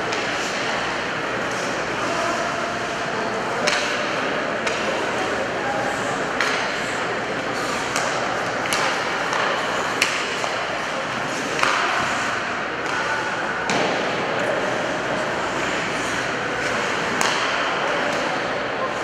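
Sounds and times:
hockey sticks and puck clacking: 0.0 - 19.0
skates scraping on ice: 14.4 - 17.5.

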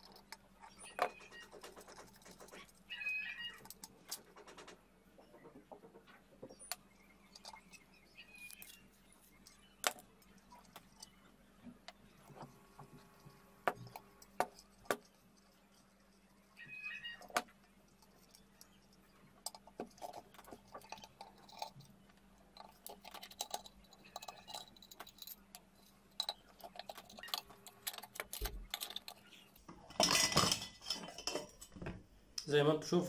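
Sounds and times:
small metal clicks and clinks: 17.0 - 31.8
metal scraping clatter: 22.5 - 31.8.

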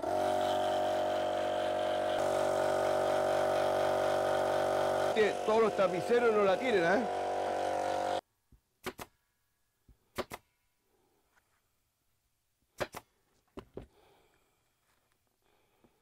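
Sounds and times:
staple gun double snap: 8.8 - 9.1, 10.2 - 10.4, 12.8 - 13.0.

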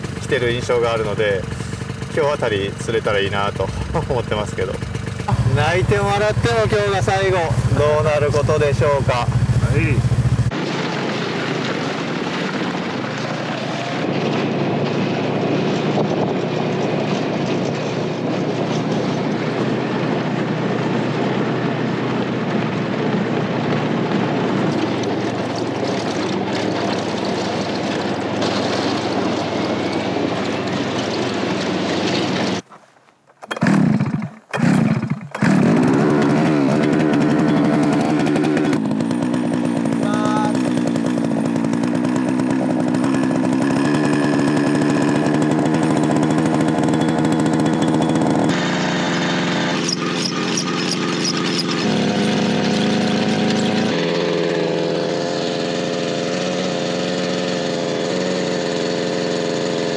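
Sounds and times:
ice auger engine buzzing: 0.0 - 10.6, 24.3 - 32.6, 33.4 - 59.9
snowmobile engine running: 0.0 - 32.6, 33.5 - 59.9.

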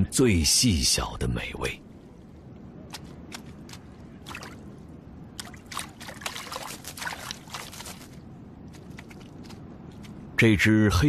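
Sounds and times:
low steady water wash: 1.8 - 10.3
small water splashes and trickles: 2.9 - 9.6.

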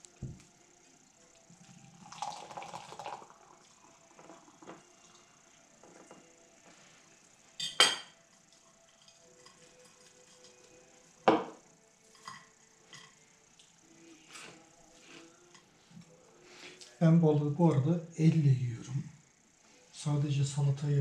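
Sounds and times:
cutlery and dishes clinking: 7.6 - 8.2, 11.3 - 13.2.

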